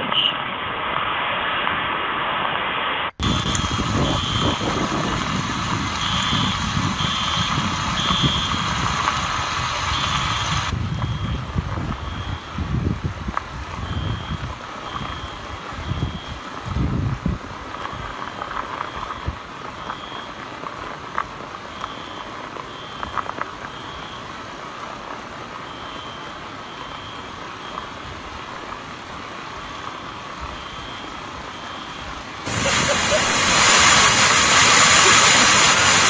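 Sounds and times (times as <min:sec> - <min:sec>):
steady hiss: 0:00.7 - 0:36.0
high electronic beeps: 0:03.2 - 0:04.6, 0:09.8 - 0:12.5, 0:13.8 - 0:16.4
low rumbling: 0:03.2 - 0:20.3.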